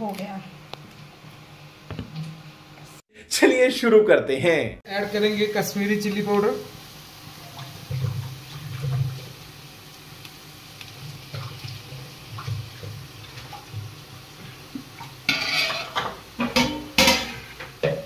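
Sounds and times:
onions frying in oil: 4.9s - 18.0s
spatula scraping steel pot: 15.2s - 17.6s.

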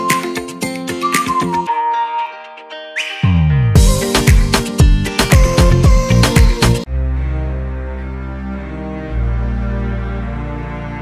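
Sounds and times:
music with steady beat and bass: 0.0s - 6.9s.

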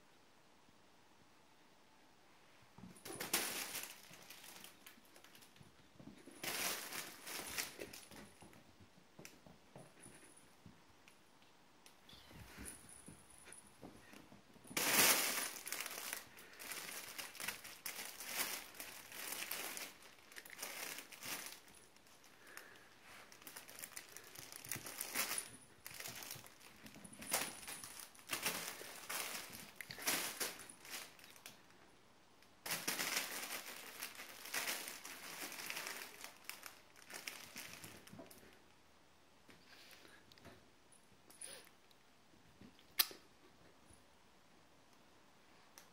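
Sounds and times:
crinkly play tunnel rustling: 2.6s - 10.5s, 12.1s - 31.9s, 32.6s - 38.7s.

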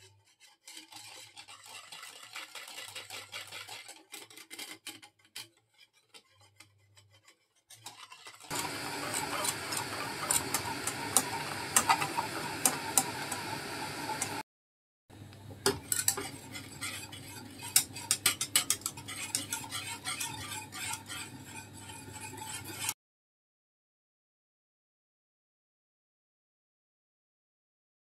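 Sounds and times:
whisk scraping metal pot: 0.0s - 14.4s, 15.6s - 23.0s.

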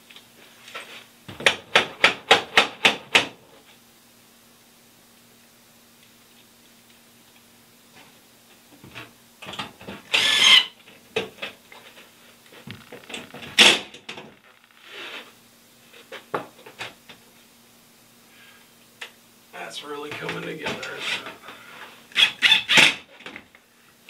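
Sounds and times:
knocks and clicks against wall: 1.3s - 3.3s.

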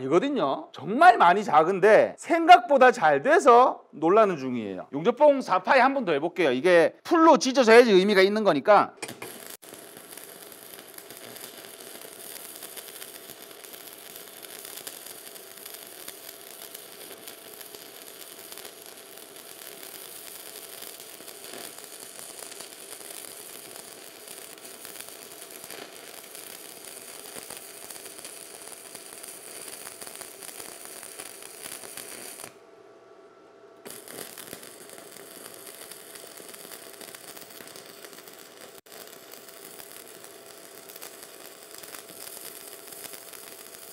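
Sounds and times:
arc welding crackle: 9.0s - 32.6s, 33.8s - 43.9s.

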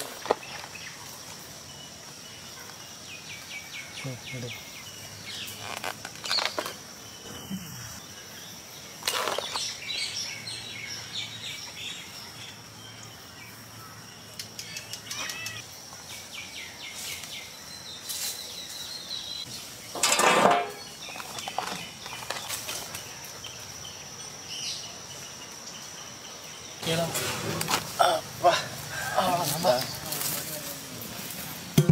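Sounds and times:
insects droning: 0.0s - 31.9s
lobsters rustling and clicking: 21.0s - 23.3s.

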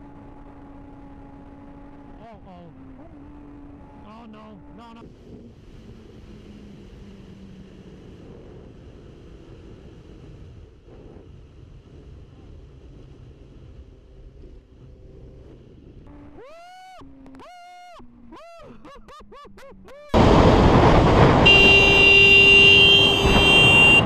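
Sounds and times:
motorcycle engine drone: 0.0s - 24.0s
wind rush on microphone: 5.0s - 16.1s, 20.2s - 24.0s
motorcycle engine revving: 20.1s - 24.0s.

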